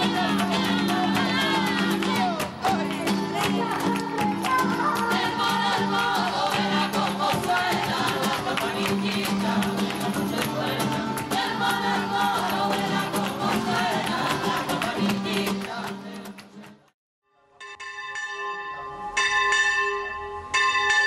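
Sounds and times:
music with singing and percussion: 0.0 - 16.9.

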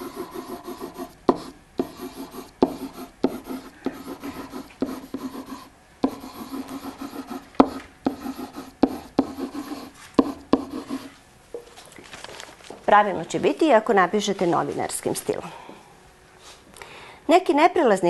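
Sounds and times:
pen scratching on paper: 0.0 - 11.1
pen tapping down: 7.6 - 9.4.

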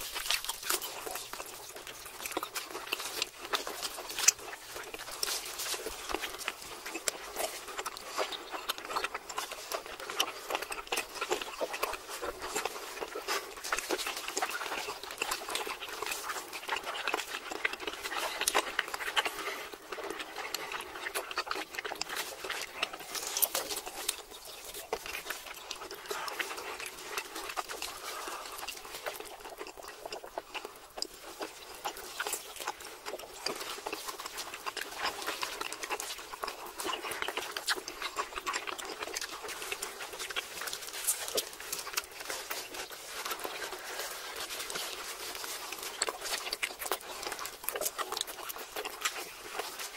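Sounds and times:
people chewing with lip smacks: 0.0 - 49.9.

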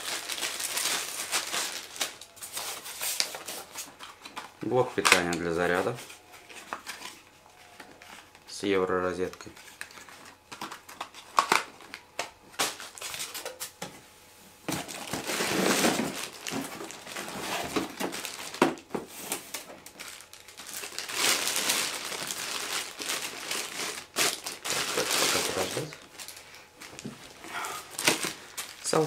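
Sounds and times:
plastic packaging crinkling: 0.0 - 8.4, 9.2 - 13.5, 14.7 - 29.0
cardboard and parts knocking: 14.7 - 19.4.

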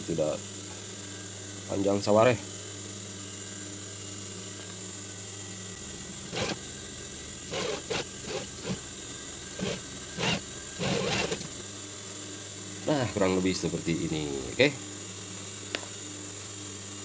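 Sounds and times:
sewing machine motor hum: 4.4 - 12.1
sewing machine stitching: 6.3 - 6.6, 7.5 - 8.8, 9.6 - 11.6.

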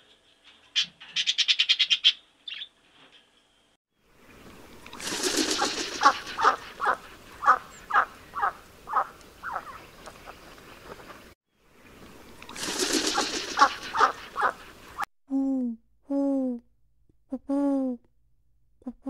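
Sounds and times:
duck quacking: 6.0 - 9.8, 13.2 - 14.7.

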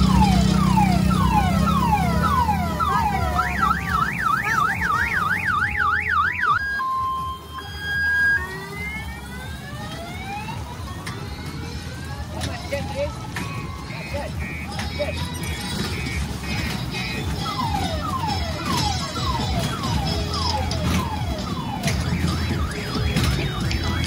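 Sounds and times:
electronic siren alarm tones: 0.0 - 10.9, 17.1 - 24.0.

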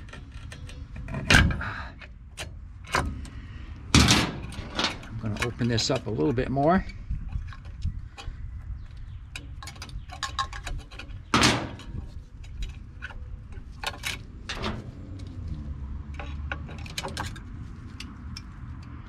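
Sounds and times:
metal clicks and scrapes: 0.0 - 19.0
metal clank: 3.9 - 6.4, 9.4 - 15.0.

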